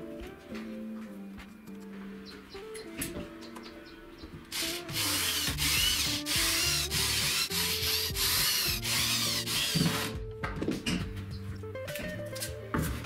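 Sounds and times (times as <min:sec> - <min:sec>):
cordless drill motor whining: 0:04.5 - 0:10.1
drill bit rasping into wood: 0:04.5 - 0:10.1.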